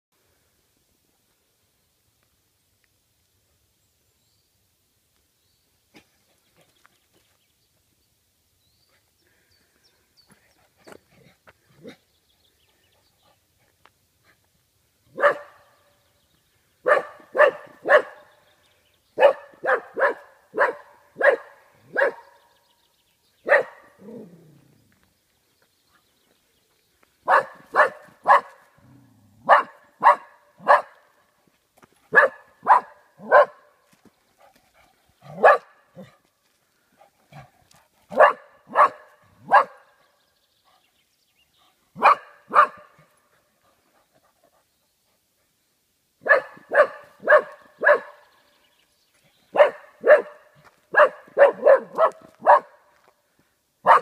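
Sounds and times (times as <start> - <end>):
dog barking: 15.1 - 15.7, 16.8 - 18.3, 19.2 - 22.4, 23.4 - 24.3, 27.3 - 28.6, 29.4 - 31.1, 32.1 - 33.7, 35.3 - 36.1, 38.1 - 40.0, 42.0 - 43.0, 46.2 - 48.3, 49.5 - 52.8.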